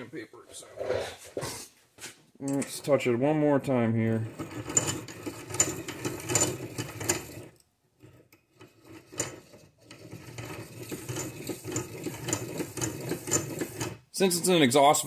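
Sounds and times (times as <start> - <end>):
abrasive stone grinding metal: 4.1 - 14.5
mechanical rasp with clicks: 4.3 - 14.0.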